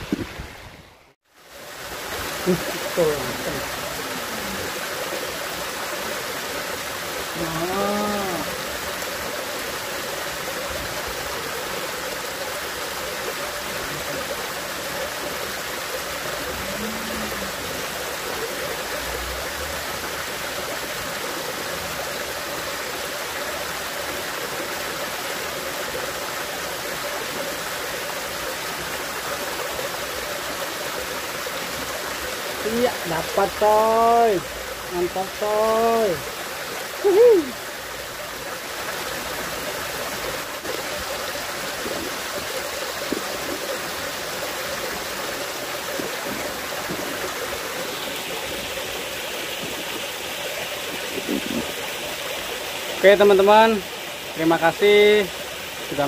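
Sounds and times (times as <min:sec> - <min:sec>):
creek water pouring: 0:00.0 - 0:56.0
hum-like voice: 0:16.5 - 0:17.8.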